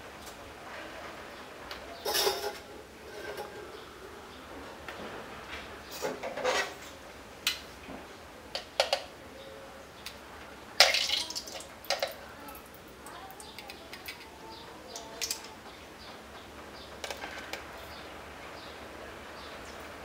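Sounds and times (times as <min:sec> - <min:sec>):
metal tongs scraping grill pan: 0:02.0 - 0:03.6, 0:06.0 - 0:06.8.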